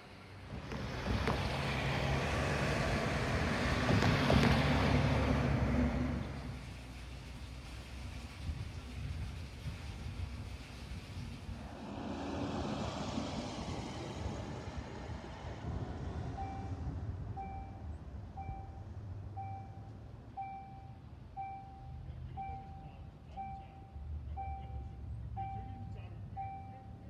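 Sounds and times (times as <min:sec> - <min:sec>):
car driving past: 0:00.3 - 0:06.6, 0:11.5 - 0:18.1
level crossing warning bell: 0:17.4 - 0:27.0.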